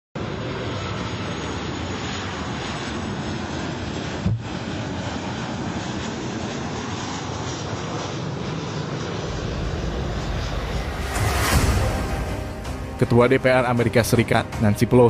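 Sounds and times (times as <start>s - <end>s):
jet engines rushing: 0.2s - 15.0s
low thump: 9.3s - 13.1s.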